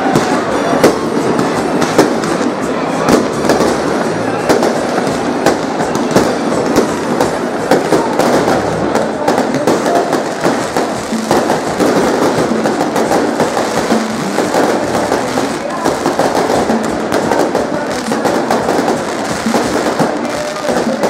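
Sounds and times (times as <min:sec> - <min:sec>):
fireworks bangs and crackling: 0:00.0 - 0:21.0.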